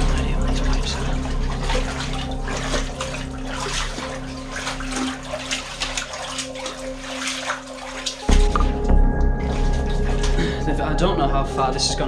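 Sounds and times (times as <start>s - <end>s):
steady low hum: 0.0s - 6.6s
feet wading through shallow water: 0.0s - 12.0s.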